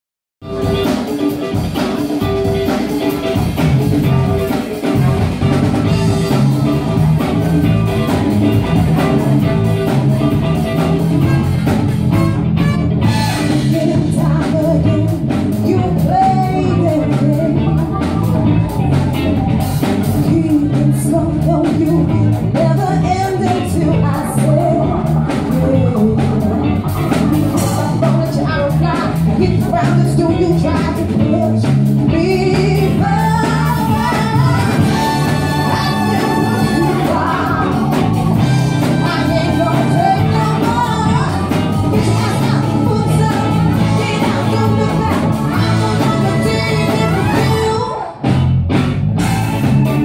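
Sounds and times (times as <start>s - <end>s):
bass line: 0.4s - 50.0s
drums: 0.4s - 50.0s
electric guitar: 0.4s - 50.0s
trumpet: 11.0s - 13.7s, 34.5s - 37.8s, 45.6s - 47.9s
woman singing: 13.4s - 18.7s, 20.1s - 26.7s, 27.6s - 48.2s.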